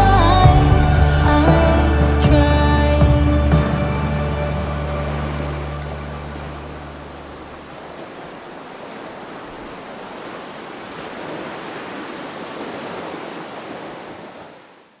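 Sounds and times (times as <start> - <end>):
low music notes: 0.0 - 7.6
ocean waves breaking: 0.0 - 15.0.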